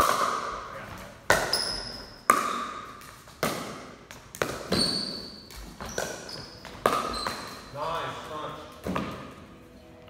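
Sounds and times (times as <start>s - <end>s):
ball bouncing on concrete: 0.0s - 0.6s, 1.2s - 7.6s, 8.8s - 9.4s.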